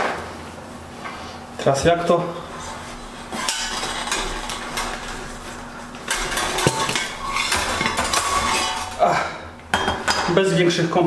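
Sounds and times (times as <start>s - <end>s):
metal utensil scraping a pot: 2.4s - 9.1s.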